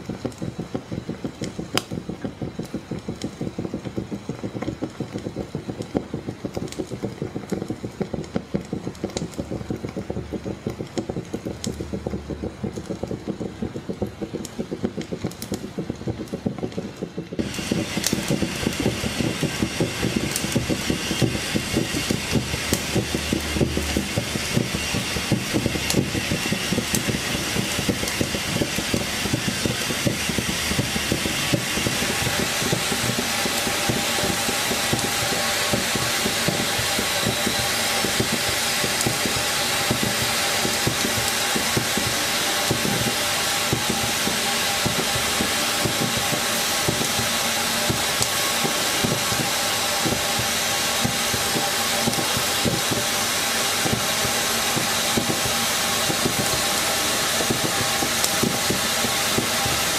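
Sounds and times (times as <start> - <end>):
steam hiss: 13.5 - 59.9.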